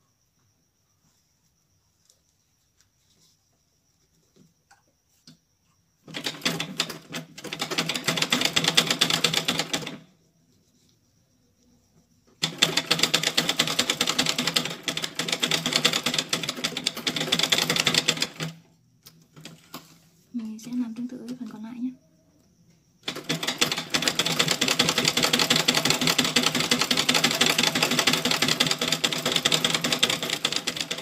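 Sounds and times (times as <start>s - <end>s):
sewing machine needle clatter: 6.1s - 10.0s, 12.4s - 18.6s, 23.0s - 31.0s.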